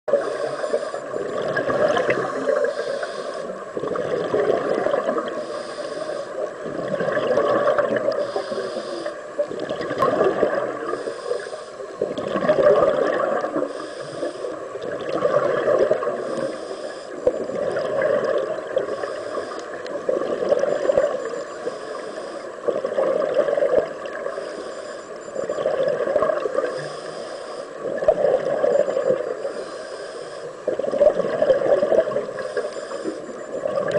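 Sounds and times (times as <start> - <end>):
diver's regulator breathing: 0.1 - 3.8, 4.5 - 6.6, 8.1 - 9.4, 10.8 - 12.2, 13.5 - 14.8, 15.6 - 22.9, 24.0 - 25.5, 26.4 - 27.9, 28.7 - 30.8, 31.8 - 33.7
exhaled air bubbling underwater: 0.1 - 33.9.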